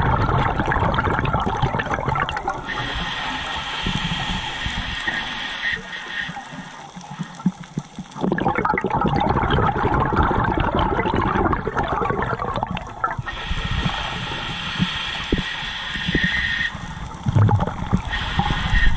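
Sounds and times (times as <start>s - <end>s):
diver exhaling bubbles: 0.0s - 5.8s, 8.1s - 18.9s
regulator hiss breath in: 2.6s - 7.7s, 13.3s - 17.2s, 18.0s - 18.9s.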